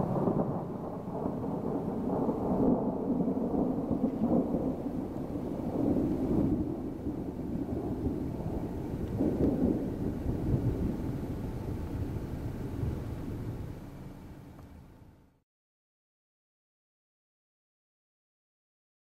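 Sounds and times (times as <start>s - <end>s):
thunder rumbling: 0.0s - 14.6s.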